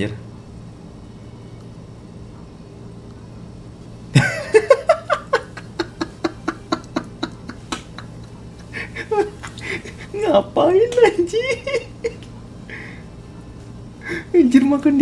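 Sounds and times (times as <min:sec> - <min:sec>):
man laughing hard: 0:04.2 - 0:10.2.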